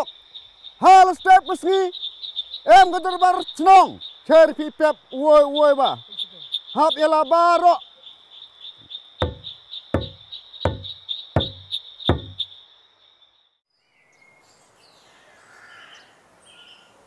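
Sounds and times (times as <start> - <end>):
bird calls: 0.0 - 12.6
fast-pulsing insect chirp: 0.0 - 13.6
barrel drum beats: 9.2 - 12.4.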